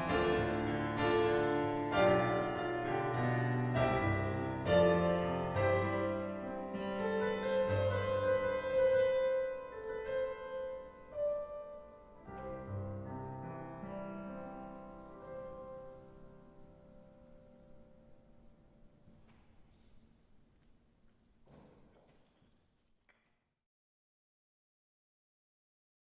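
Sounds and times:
piano playing slow chords: 0:00.0 - 0:19.2.

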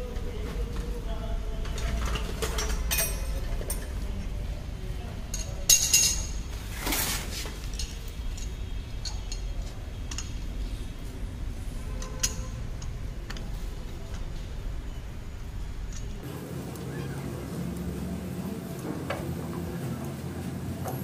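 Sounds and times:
metal tools clinking: 0:01.6 - 0:04.3, 0:05.3 - 0:10.4, 0:11.9 - 0:13.4.

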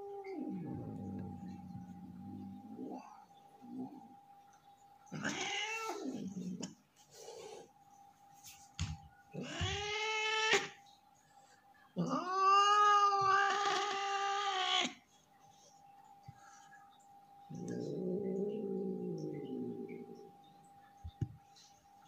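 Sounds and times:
cat yowling with hiss: 0:05.2 - 0:06.3, 0:12.0 - 0:15.0.

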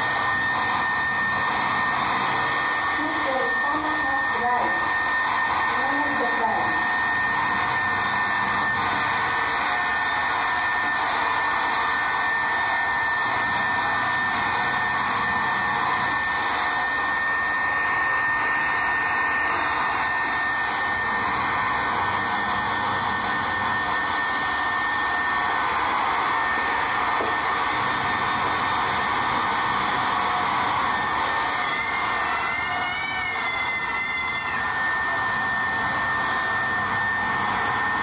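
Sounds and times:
hair dryer blowing: 0:00.0 - 0:38.0.

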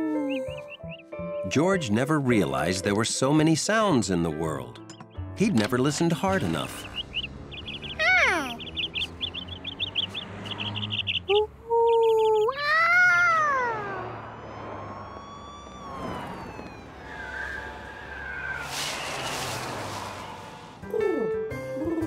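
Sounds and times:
slow gliding tones: 0:07.0 - 0:20.9
hissing burst: 0:15.9 - 0:20.8.

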